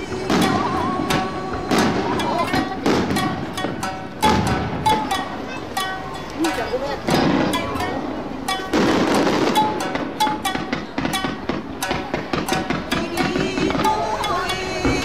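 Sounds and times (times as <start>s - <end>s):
music with held melody: 0.0s - 15.0s.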